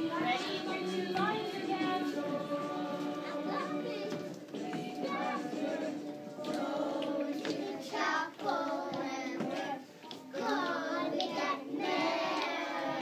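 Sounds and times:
children singing: 0.0 - 13.0
music: 0.0 - 13.0.

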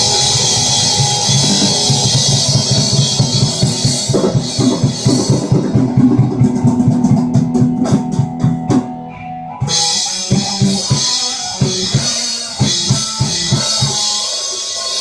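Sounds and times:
cymbal wash: 0.0 - 5.6
heavy metal drums and guitar: 0.0 - 15.0.

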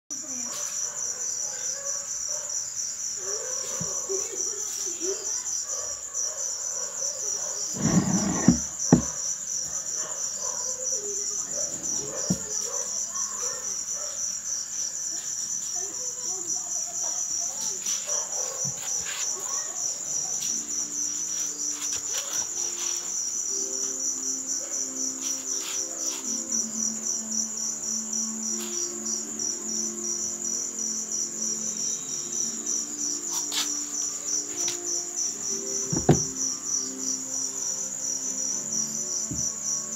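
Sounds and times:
insects trilling: 0.1 - 39.9
sharp knocks: 36.0 - 36.4.

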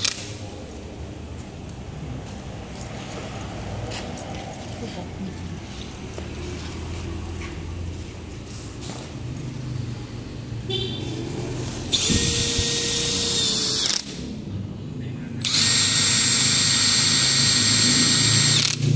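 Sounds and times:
cordless drill motor whine: 11.9 - 14.1, 15.4 - 18.8.

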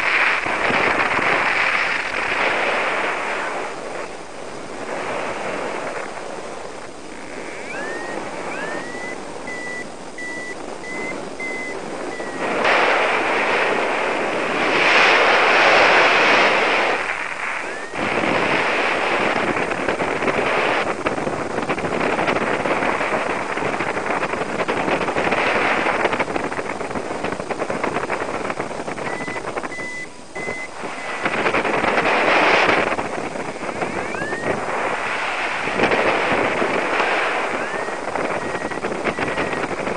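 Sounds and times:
wind rushing over microphone: 0.0 - 39.9
high beeping tone: 7.5 - 12.6, 17.7 - 18.0, 29.1 - 31.3, 33.8 - 34.6, 37.5 - 39.7.

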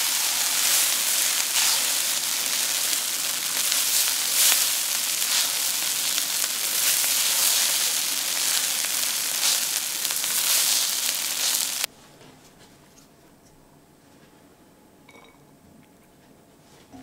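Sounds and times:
rice sizzling in a pan: 0.0 - 11.9.

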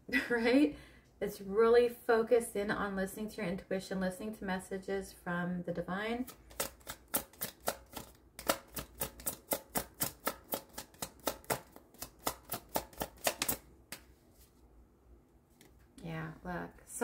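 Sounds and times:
cards being shuffled by hand: 6.2 - 14.6.

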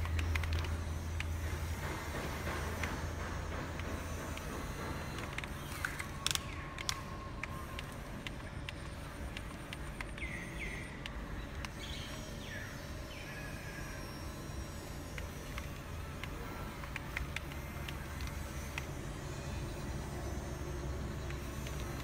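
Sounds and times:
clicks and ticks: 0.0 - 12.2
model excavator motors humming: 0.0 - 22.0.

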